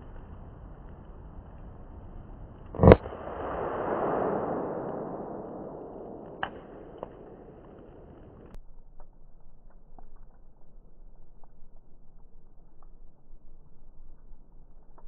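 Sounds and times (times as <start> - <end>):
firecracker bang: 2.7 - 8.6
rush of noise: 2.8 - 8.5.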